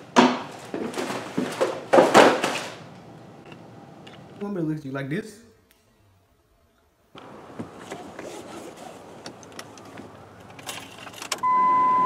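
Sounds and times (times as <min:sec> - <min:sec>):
car cabin noise: 0:07.2 - 0:12.0
loud steady beep tone: 0:11.4 - 0:12.0.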